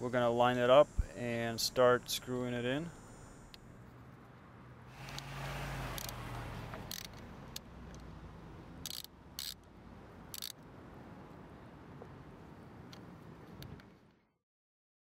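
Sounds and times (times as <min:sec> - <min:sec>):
ratchet pawl clicking: 0:05.9 - 0:08.0, 0:08.8 - 0:09.7, 0:10.3 - 0:10.6.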